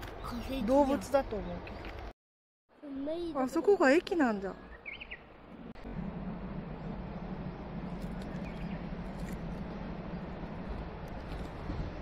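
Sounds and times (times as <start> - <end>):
bird chirping: 4.5 - 5.5, 7.1 - 10.5
train rumbling: 5.4 - 12.0.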